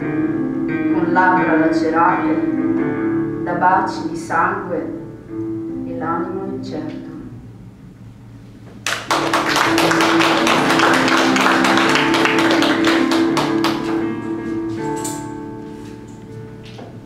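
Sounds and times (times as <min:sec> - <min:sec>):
electronic keyboard chords: 0:00.0 - 0:03.9, 0:09.0 - 0:17.0
audience applauding: 0:08.8 - 0:14.2.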